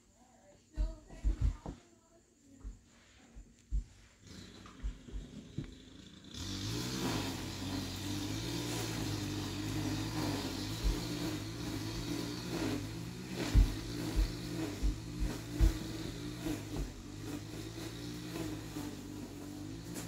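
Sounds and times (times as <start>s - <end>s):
dull thumps: 0.7s - 1.9s, 2.6s - 5.8s, 9.8s - 17.6s
steady motor-like drone: 4.4s - 20.0s.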